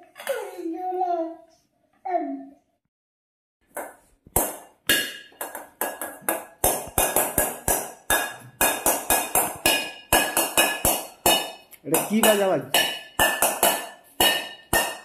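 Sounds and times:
spoon beating metal bowl: 3.7s - 15.0s.

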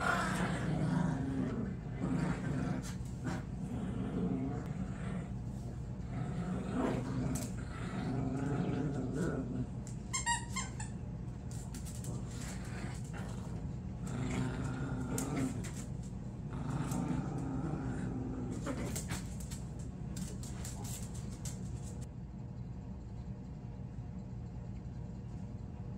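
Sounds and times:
puppies growling in play: 0.0s - 22.1s
high squeaks: 10.1s - 11.0s.

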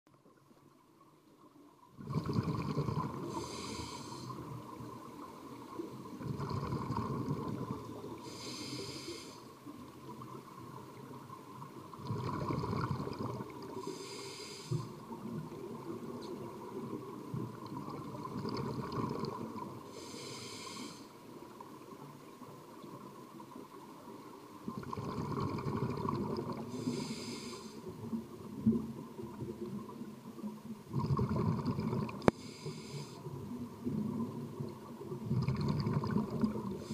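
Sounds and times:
exhaust bubbles rumbling: 2.0s - 3.3s, 6.2s - 7.9s, 12.0s - 13.5s, 30.9s - 32.3s, 35.2s - 36.8s
regulator hiss on inhale: 2.4s - 5.2s, 6.4s - 9.8s, 13.7s - 15.2s, 19.8s - 21.3s, 26.6s - 28.1s, 32.0s - 33.5s, 36.6s - 36.9s.

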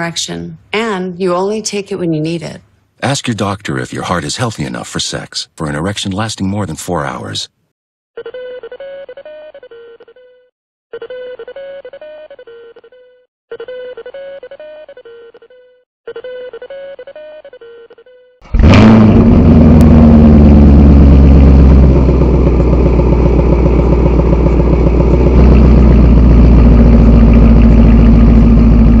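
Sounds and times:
car engine starting and idling: 18.4s - 29.0s.

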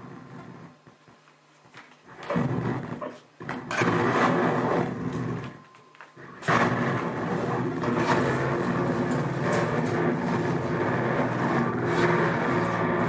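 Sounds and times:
buzzing electronic feedback noise: 3.7s - 13.0s.

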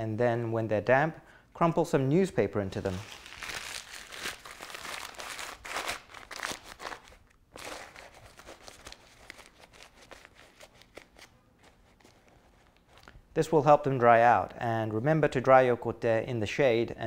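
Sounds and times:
crumpled newspaper rustling: 2.8s - 13.1s.

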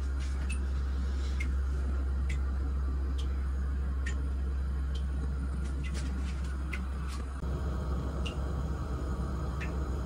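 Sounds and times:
steady low hum: 0.0s - 10.0s
light ticking: 2.2s - 3.4s, 4.0s - 5.9s, 8.1s - 8.6s, 9.4s - 10.0s.

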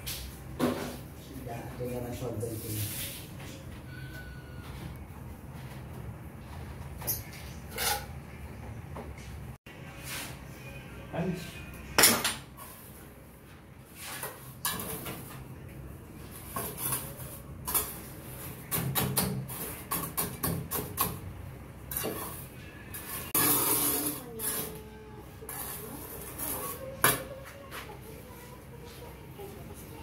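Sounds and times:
trowel scraping mortar: 23.0s - 24.8s.

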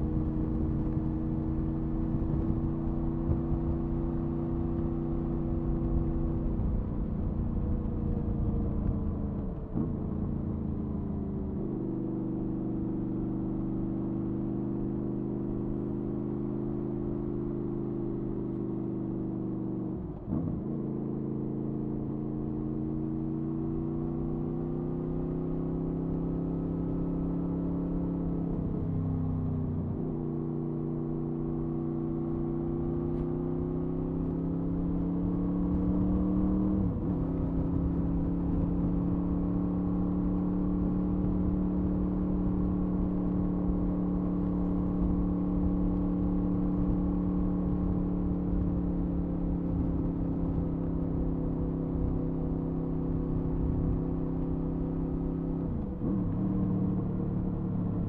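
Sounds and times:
wind rumble on microphone: 0.0s - 11.6s
motorcycle engine and exhaust: 0.0s - 58.0s.

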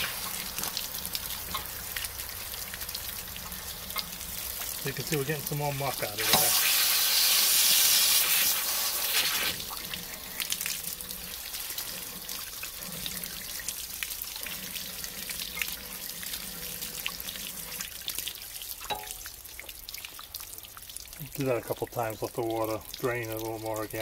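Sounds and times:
water draining and splashing: 0.0s - 24.0s
water trickling: 0.0s - 24.0s
water spray: 4.9s - 9.8s.

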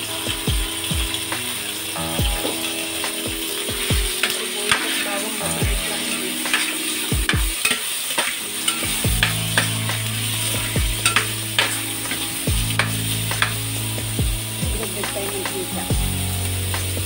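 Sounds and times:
food sizzling in a pan: 0.0s - 17.0s
spatula scraping a pan: 4.2s - 13.7s.

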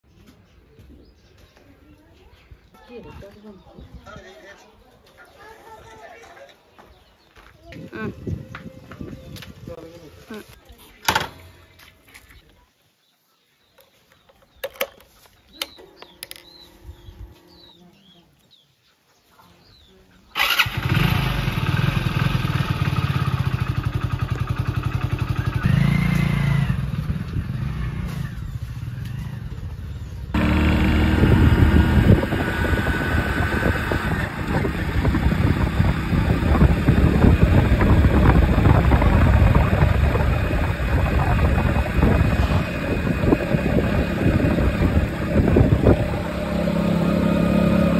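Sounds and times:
motorcycle engine running: 20.4s - 47.9s.

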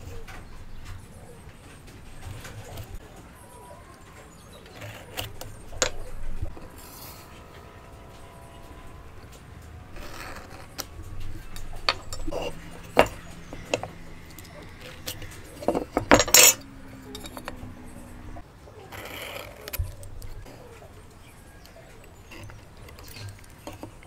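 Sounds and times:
metal tools clinking on wood: 3.7s - 20.6s, 21.5s - 24.0s
pencil scratching: 4.6s - 9.3s.

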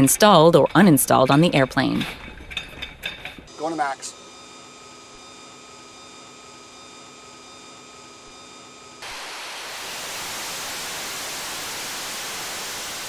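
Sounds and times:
jet engine roaring: 9.0s - 13.0s.

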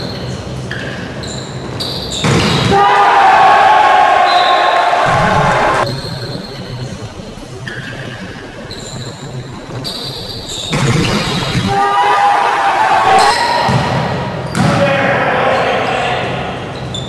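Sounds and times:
hall noise: 0.0s - 16.9s
loud voices: 2.6s - 6.1s, 10.9s - 17.0s.

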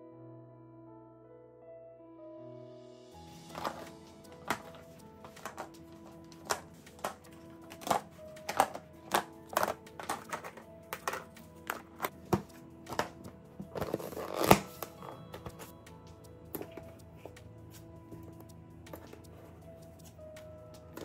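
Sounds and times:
soft background music: 0.0s - 21.0s
plastic snap and rustle: 3.5s - 15.7s
plastic lids clicking shut: 7.8s - 12.1s.

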